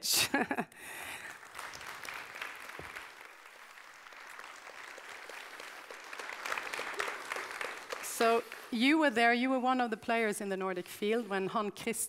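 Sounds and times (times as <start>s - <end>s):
audience applauding: 1.0s - 9.2s.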